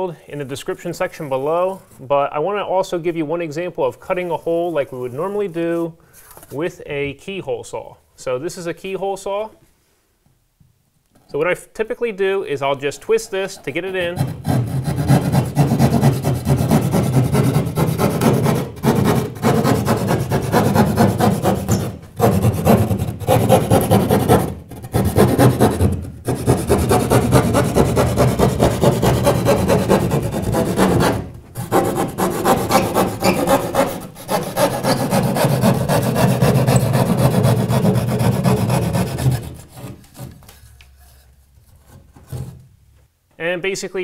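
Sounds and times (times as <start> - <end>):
saw rasping through drywall: 13.7 - 42.6.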